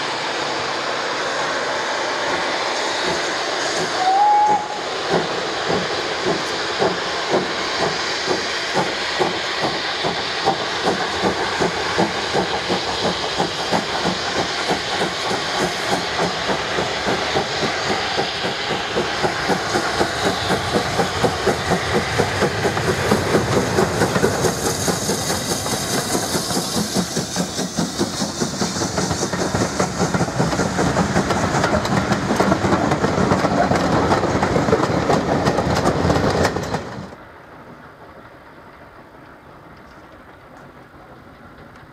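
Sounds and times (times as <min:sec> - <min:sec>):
hiss of steam: 0:00.0 - 0:41.9
steam locomotive exhaust beating: 0:00.0 - 0:41.9
wheel clatter on rails: 0:08.7 - 0:37.2.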